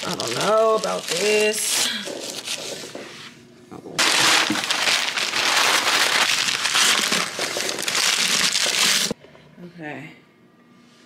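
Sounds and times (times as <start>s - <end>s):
paper crumpling and rustling: 0.0s - 3.0s, 4.0s - 9.2s.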